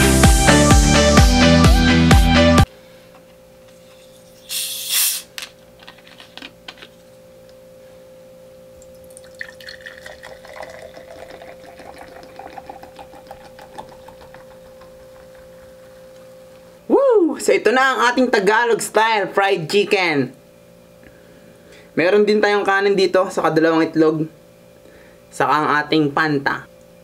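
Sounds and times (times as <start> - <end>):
gas hissing from bottle: 4.4 - 5.4
soda pouring and fizzing: 8.8 - 16.2.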